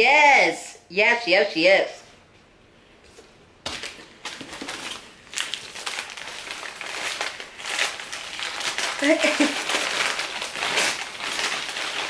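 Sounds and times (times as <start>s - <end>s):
packaging rustling and crinkling: 3.7s - 12.0s.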